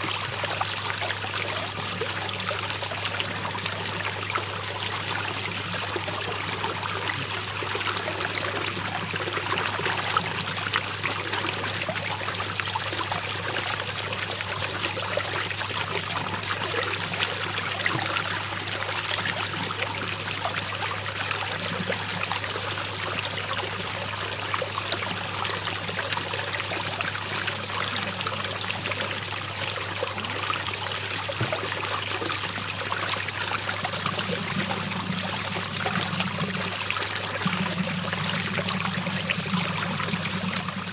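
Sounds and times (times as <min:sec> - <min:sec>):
water swirling and draining: 0:00.0 - 0:40.9
low hum: 0:33.8 - 0:40.9.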